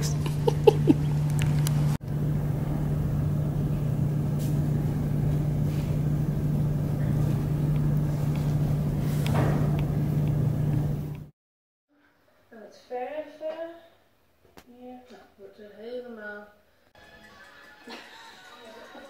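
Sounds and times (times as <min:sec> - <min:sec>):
steady mechanical hum: 0:00.0 - 0:11.3.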